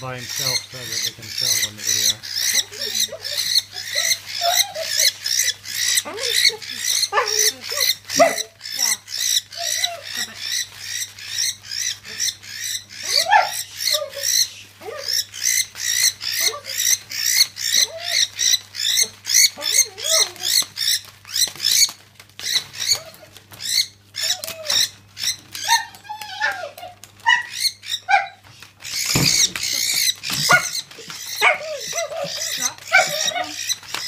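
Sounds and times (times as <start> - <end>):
bird wings flapping on newspaper: 14.8 - 27.4, 28.2 - 34.0.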